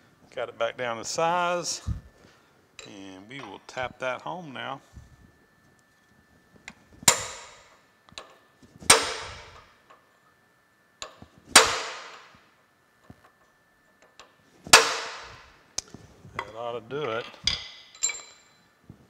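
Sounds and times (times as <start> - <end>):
hammer striking metal punch: 7.0 - 7.7, 8.9 - 9.6, 11.5 - 12.3, 14.7 - 15.5.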